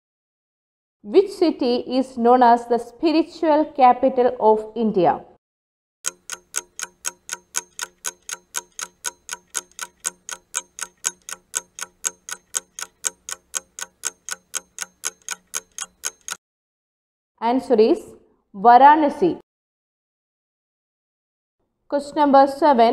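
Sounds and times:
quick clock ticks: 6.0s - 16.4s.

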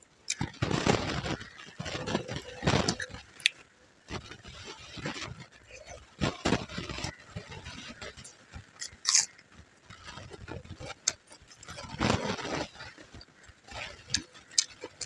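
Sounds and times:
chewing and mouth noises: 4.4s - 15.0s.

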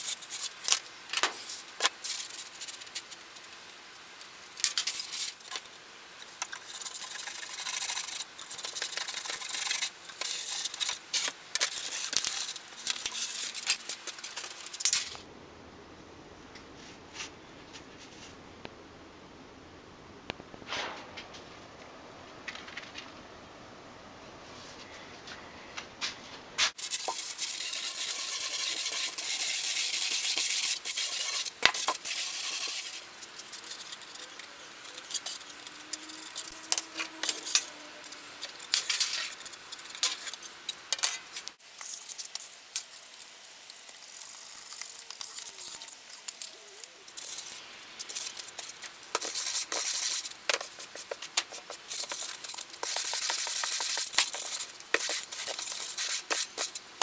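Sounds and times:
sandpaper rasping on foam: 6.6s - 14.7s, 26.8s - 35.6s, 48.3s - 56.8s.

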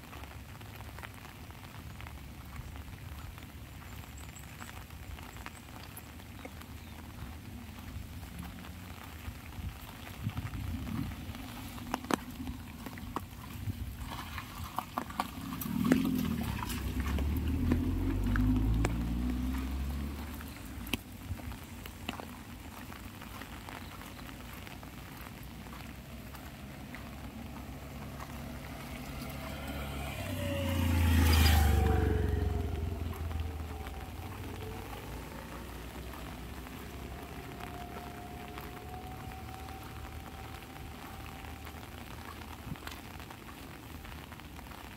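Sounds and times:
light rain on umbrella: 0.0s - 44.9s
vehicle driving past: 14.5s - 21.0s, 25.7s - 42.3s
sharper raindrop taps: 14.7s - 29.3s.

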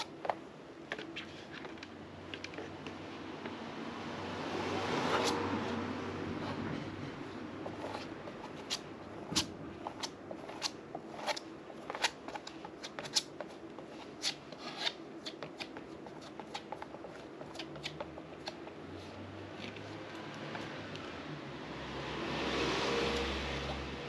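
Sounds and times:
palette knife scraping canvas: 4.8s - 5.8s, 7.6s - 18.6s.

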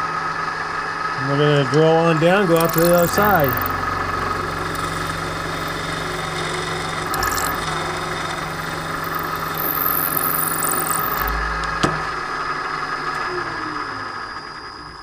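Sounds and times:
milling machine spindle running: 2.2s - 11.4s
high hissing drill cutting metal: 2.4s - 3.7s, 7.1s - 11.3s.

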